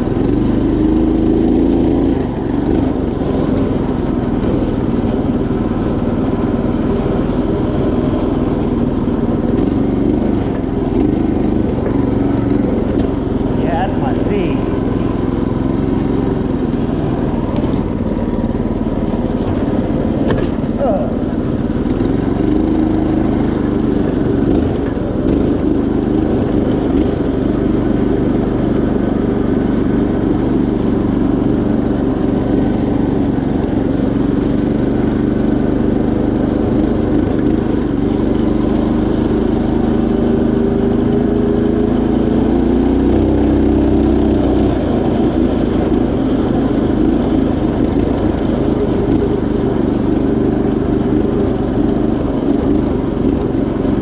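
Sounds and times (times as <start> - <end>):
riding mower engine running: 0.0 - 54.0.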